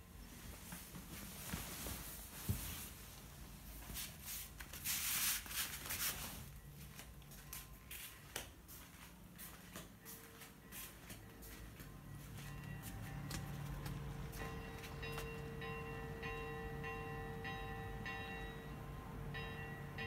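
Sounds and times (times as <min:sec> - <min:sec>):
rustling: 0:00.3 - 0:06.6
footsteps on tiled floor: 0:03.7 - 0:15.5.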